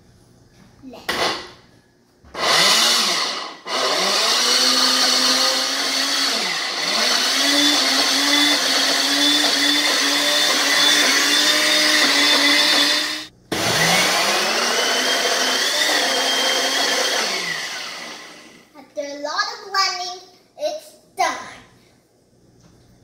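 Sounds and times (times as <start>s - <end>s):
electric blender running: 2.3s - 18.7s.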